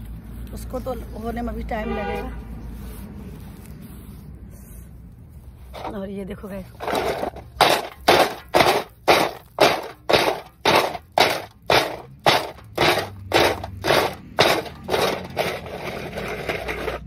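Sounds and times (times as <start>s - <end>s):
lumps rattling in steel plate: 6.8s - 17.0s.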